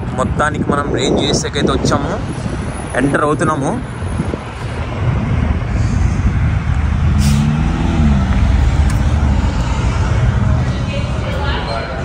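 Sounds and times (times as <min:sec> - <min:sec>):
low traffic rumble: 0:00.0 - 0:12.0
vehicle engine passing: 0:04.1 - 0:12.0.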